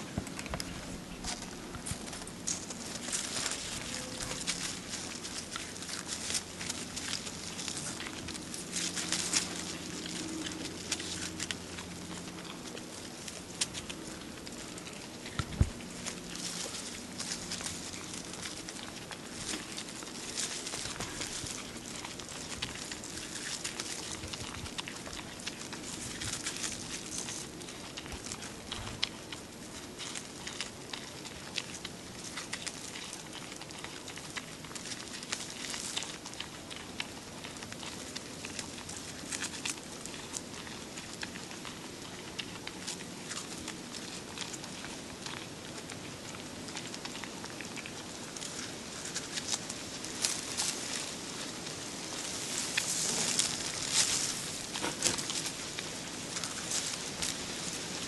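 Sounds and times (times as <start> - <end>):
animal chewing bamboo leaves: 0.0 - 58.0
leafy stems rustling: 0.0 - 58.0.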